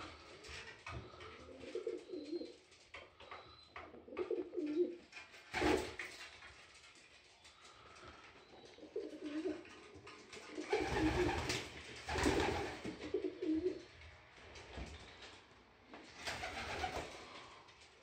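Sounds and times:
pigeons cooing: 0:00.2 - 0:05.8, 0:07.6 - 0:14.0.

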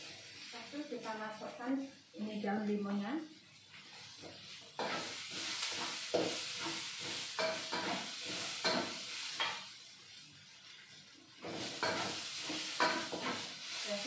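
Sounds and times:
paste sizzling in hot oil: 0:00.0 - 0:14.0
spatula scraping and stirring: 0:03.6 - 0:09.7, 0:11.4 - 0:14.0.

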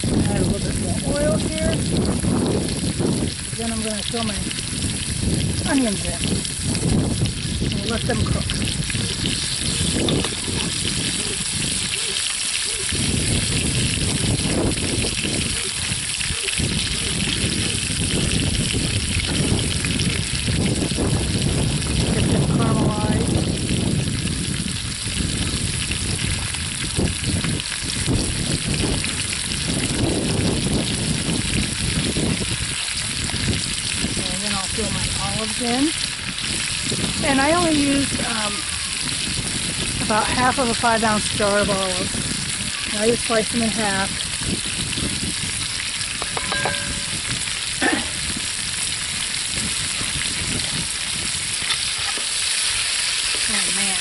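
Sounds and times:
meat sizzling in oil: 0:00.0 - 0:54.0
light clinks: 0:46.2 - 0:47.2.

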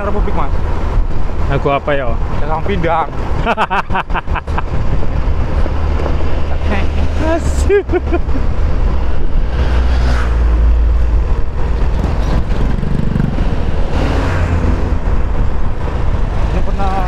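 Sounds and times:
lorries passing rumble: 0:00.0 - 0:17.0
scooter road noise: 0:00.0 - 0:17.0
wind buffeting microphone: 0:08.2 - 0:16.8.

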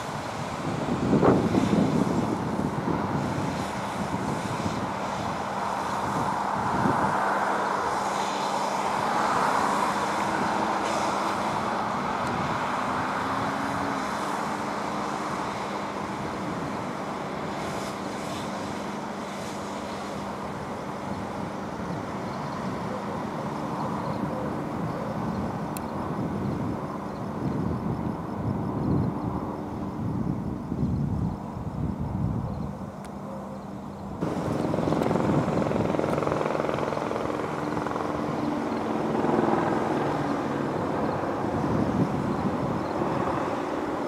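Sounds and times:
fire hose water hissing: 0:00.0 - 0:23.8, 0:34.2 - 0:37.3
traffic: 0:00.0 - 0:44.0
engine running: 0:34.2 - 0:44.0.

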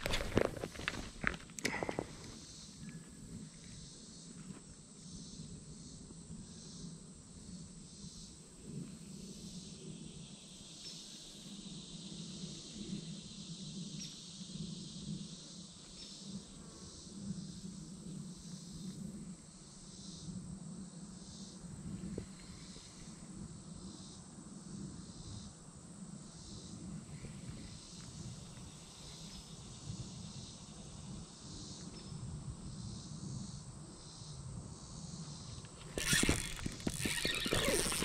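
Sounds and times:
insects singing: 0:34.9 - 0:38.0.

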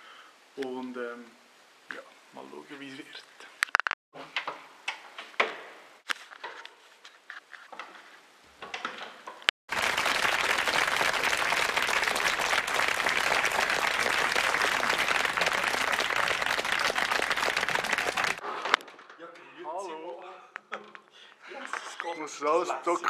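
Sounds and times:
studio audience applauding: 0:09.7 - 0:18.4.

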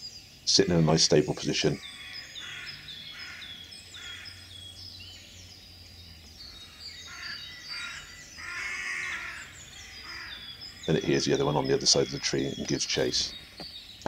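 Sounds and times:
small songbirds chirping: 0:00.0 - 0:14.0.

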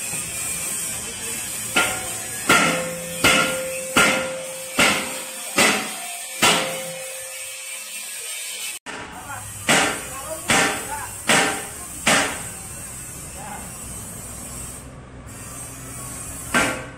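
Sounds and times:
sharp ringing knocks: 0:01.8 - 0:07.2, 0:08.9 - 0:12.5.

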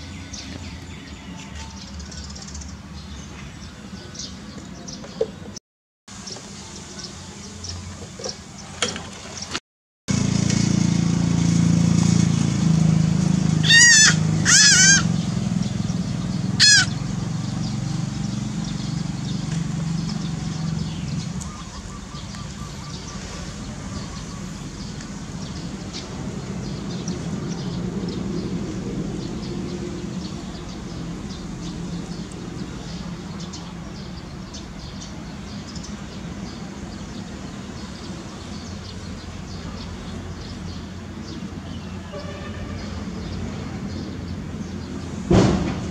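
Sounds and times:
kitten mewing: 0:13.6 - 0:15.1, 0:16.6 - 0:16.9.

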